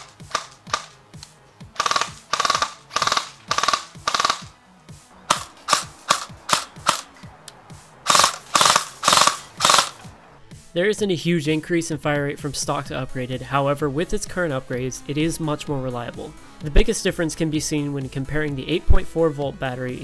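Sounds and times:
airsoft rifle firing bursts: 0.0s - 4.6s, 5.3s - 7.1s, 8.0s - 10.1s
airsoft rifle single shots: 0.0s - 4.6s, 5.3s - 7.1s, 8.1s - 10.0s.

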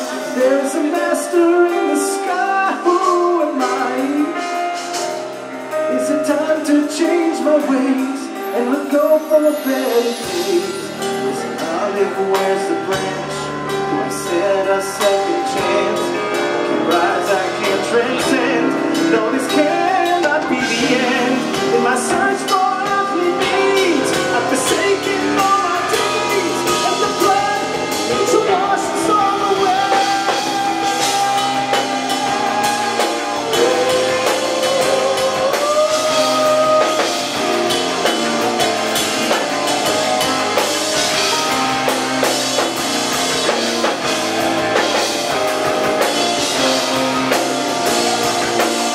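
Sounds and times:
man singing wordless melody: 0.0s - 5.0s, 5.7s - 42.7s
live rock band playing: 0.0s - 48.9s.

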